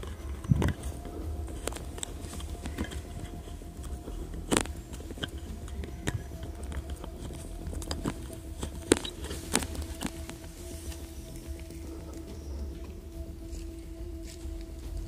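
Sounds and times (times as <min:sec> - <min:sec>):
dry leaves and twigs crackling: 0:00.0 - 0:15.0.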